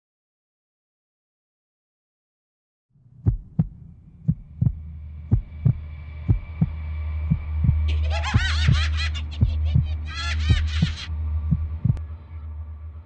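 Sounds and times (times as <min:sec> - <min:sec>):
low drone: 0:03.0 - 0:13.0
heartbeat thumps: 0:03.2 - 0:12.0.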